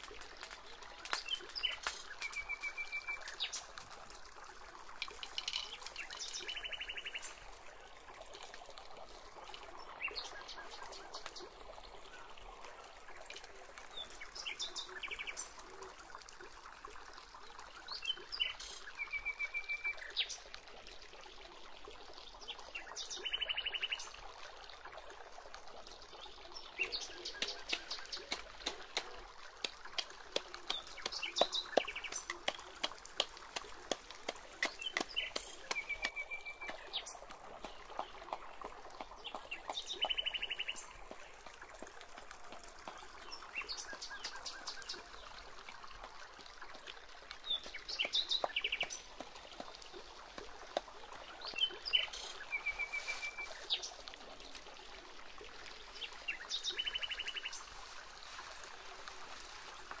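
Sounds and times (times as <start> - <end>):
faint outdoor background: 0.0 - 60.0
small birds trilling: 34.6 - 37.2.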